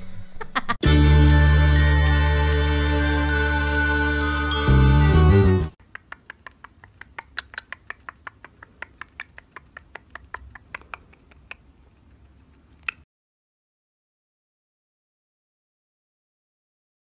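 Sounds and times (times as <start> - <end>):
background music: 0.0 - 5.8
bird beak clicking and smacking: 5.8 - 13.0.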